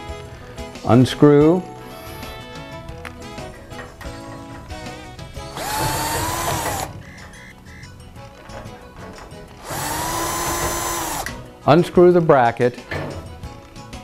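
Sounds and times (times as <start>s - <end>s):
background music: 0.0s - 14.0s
cordless drill spinning: 5.6s - 6.9s, 9.6s - 11.4s.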